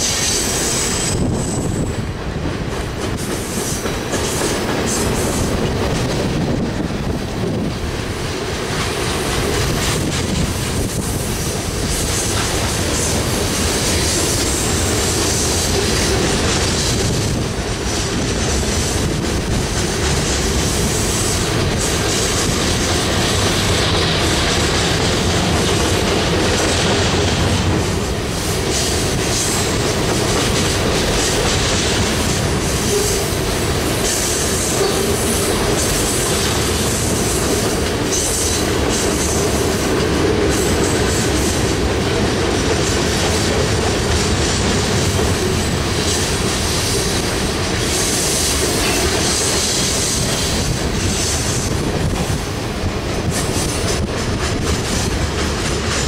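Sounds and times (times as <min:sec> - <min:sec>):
freight train wheels rumbling: 0:00.0 - 0:56.0.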